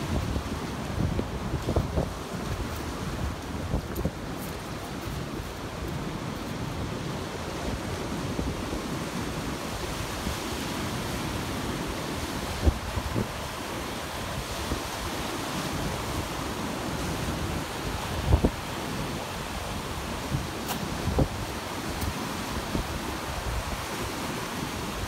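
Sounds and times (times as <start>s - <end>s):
wind buffeting microphone: 0.0s - 10.6s, 12.4s - 15.0s, 17.1s - 23.9s
small waves washing ashore: 0.0s - 25.0s.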